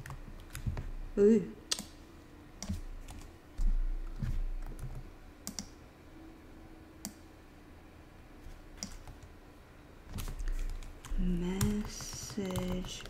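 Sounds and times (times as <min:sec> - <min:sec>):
keyboard keys clicking: 0:08.8 - 0:09.3, 0:10.1 - 0:13.0.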